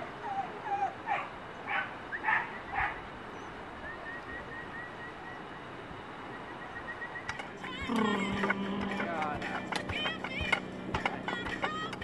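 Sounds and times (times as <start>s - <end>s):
dog barking: 1.1s - 3.0s.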